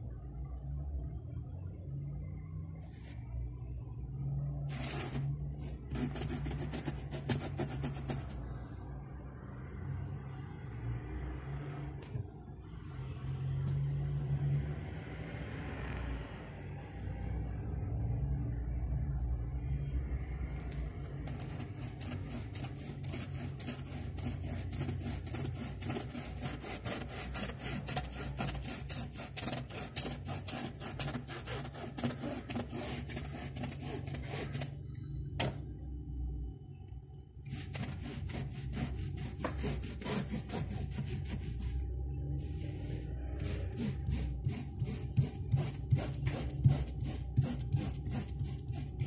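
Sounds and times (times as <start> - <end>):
low steady hum: 0.0 - 49.0
brush strokes scratching on board: 4.7 - 8.5, 21.1 - 34.8, 37.5 - 49.0.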